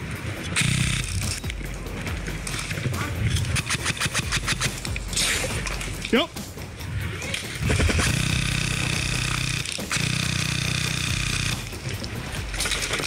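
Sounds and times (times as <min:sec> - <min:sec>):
airsoft rifle firing full auto: 0:07.7 - 0:11.7.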